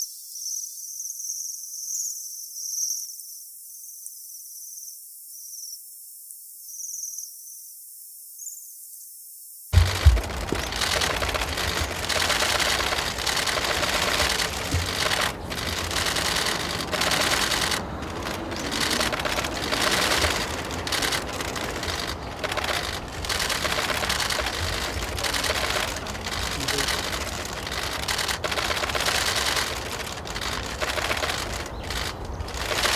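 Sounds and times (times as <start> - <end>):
camera shutters firing rapidly: 9.8 - 32.9.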